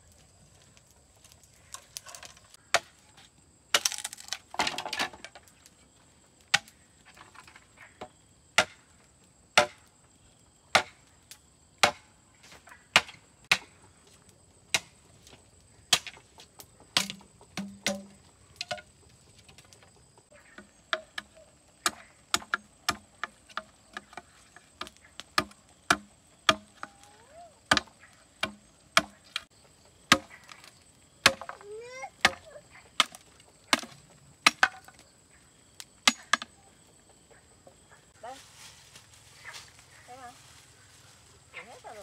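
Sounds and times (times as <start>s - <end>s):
blade chopping wood: 3.7s - 5.2s, 6.5s - 6.8s, 8.6s - 8.8s, 9.6s - 9.9s, 10.7s - 11.0s, 11.8s - 12.1s, 12.9s - 13.8s, 14.7s - 15.0s, 15.9s - 16.2s, 17.0s - 18.8s, 20.6s - 27.0s, 27.7s - 29.5s, 30.1s - 35.0s.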